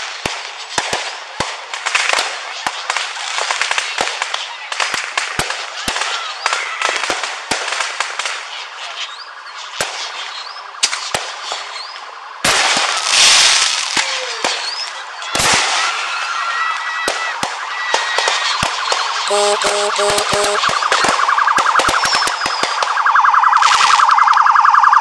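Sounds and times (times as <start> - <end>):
fireworks bangs and crackling: 0.0 - 25.0
fireworks rising whistles: 8.3 - 24.6.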